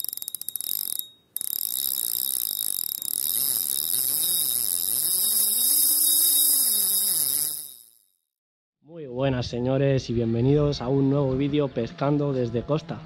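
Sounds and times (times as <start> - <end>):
fishing reel drag buzzing: 0.0 - 8.1.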